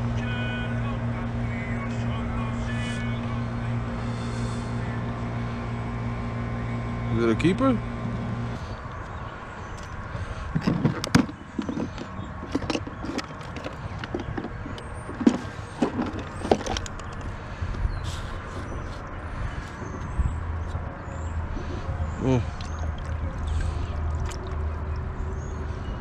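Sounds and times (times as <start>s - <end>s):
plastic box clicks and knocks: 10.6s - 17.1s.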